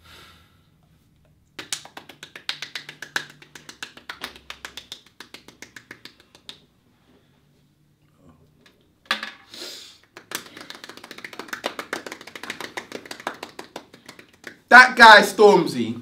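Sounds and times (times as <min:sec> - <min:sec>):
quick hand claps: 0:01.6 - 0:06.7, 0:10.0 - 0:14.7.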